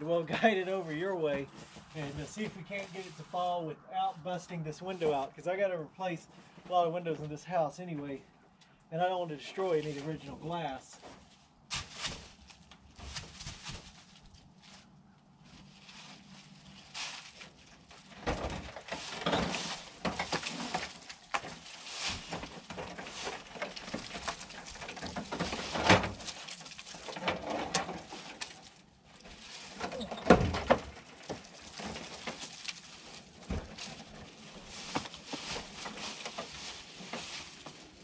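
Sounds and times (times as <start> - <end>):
tin roofing scraping and rattling: 0.2 - 3.4, 15.5 - 38.0.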